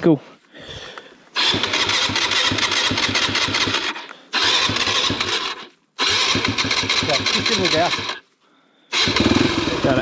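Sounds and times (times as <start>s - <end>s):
dirt bike electric starter cranking: 1.4s - 8.2s, 8.9s - 10.0s.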